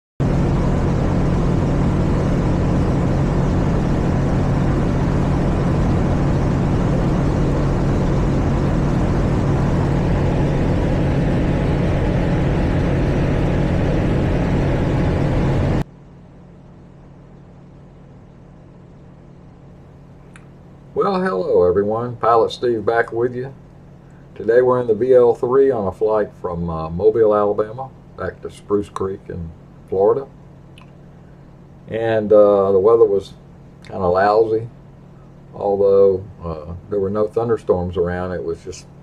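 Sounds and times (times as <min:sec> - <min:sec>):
aircraft engine and propeller drone: 0:00.2 - 0:18.4.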